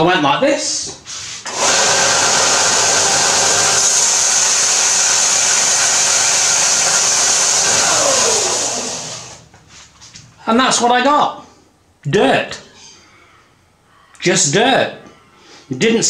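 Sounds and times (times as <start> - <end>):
belt sander running: 1.4 - 9.5
motor winding down with whine: 1.5 - 9.5.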